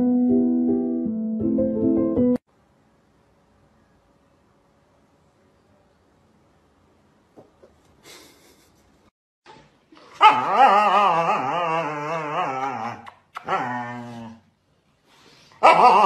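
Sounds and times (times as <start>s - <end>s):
dog howling whine: 10.2s - 14.4s.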